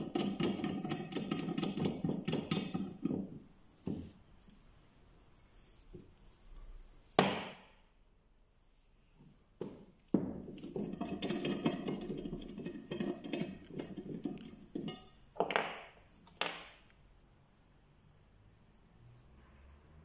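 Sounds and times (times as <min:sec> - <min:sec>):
metal tools clinking and rattling: 0:10.8 - 0:15.2.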